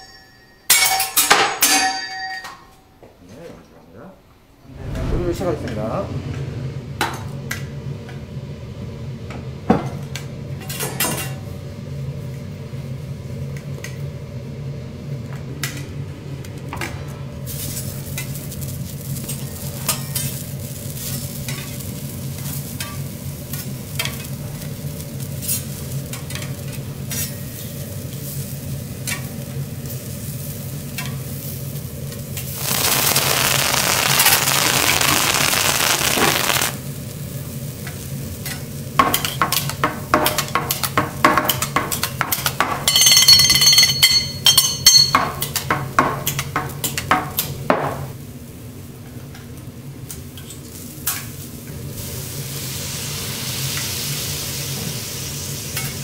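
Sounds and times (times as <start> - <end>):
steady low hum: 3.3 - 10.6
vegetables sizzling on a griddle: 17.5 - 43.1, 50.1 - 56.0.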